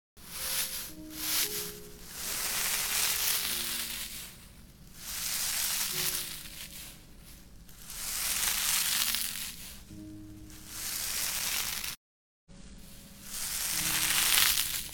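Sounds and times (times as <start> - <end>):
faint background music: 0.2 - 11.9, 12.5 - 14.9
objects rubbed against microphone: 0.2 - 12.0.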